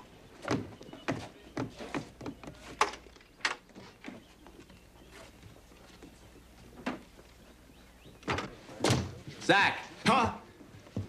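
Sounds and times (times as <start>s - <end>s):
boots knocking on wooden boards: 0.4s - 3.0s.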